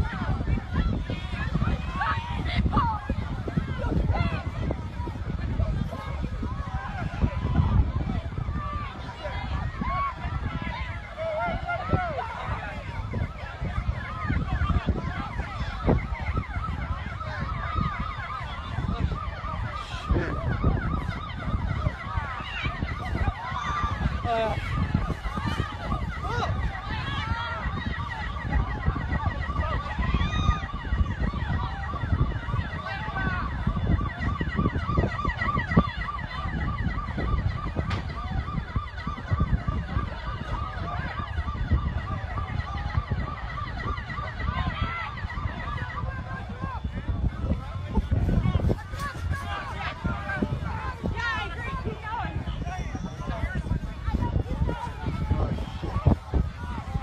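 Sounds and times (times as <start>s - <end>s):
emergency sirens wailing: 0.0s - 57.0s.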